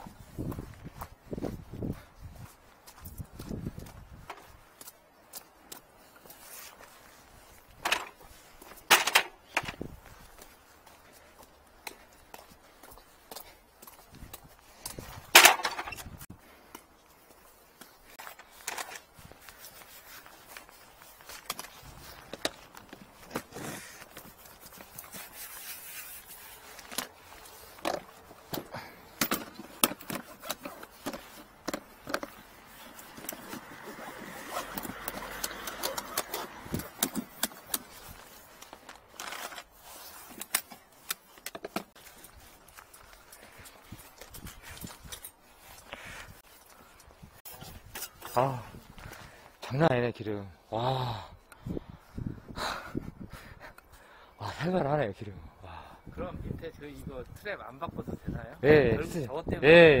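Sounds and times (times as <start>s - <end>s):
footsteps: 0.0s - 49.4s
tool case clattering on asphalt: 7.8s - 9.9s, 15.2s - 16.2s, 27.8s - 38.0s.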